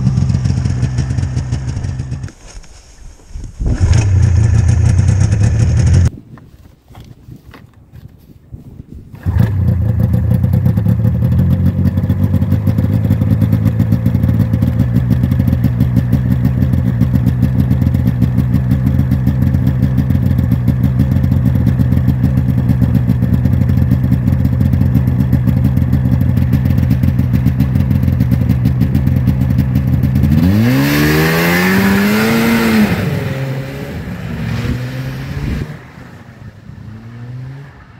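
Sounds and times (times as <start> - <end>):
snowmobile engine idling: 0.0 - 2.4, 3.9 - 6.1, 9.2 - 34.4
snowmobile engine revving: 12.3 - 37.9.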